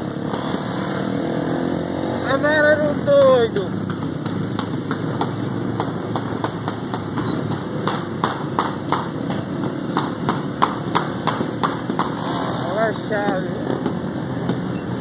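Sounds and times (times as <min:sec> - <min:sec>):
motorcycle engines rumbling: 0:00.0 - 0:15.0.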